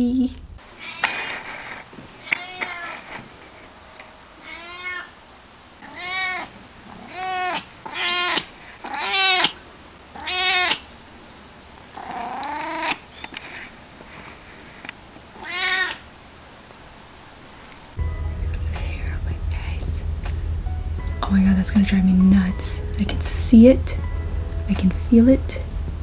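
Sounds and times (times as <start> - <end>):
cat meowing: 0.8 - 1.2, 2.2 - 3.0, 4.4 - 5.2, 5.8 - 9.6, 10.2 - 10.8, 12.0 - 13.0, 15.4 - 16.0.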